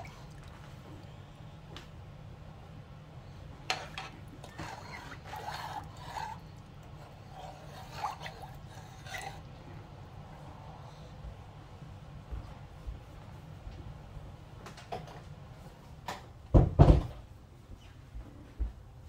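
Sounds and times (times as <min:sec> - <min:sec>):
spoon swishing and scraping in pot: 0:00.0 - 0:01.0, 0:03.5 - 0:09.9.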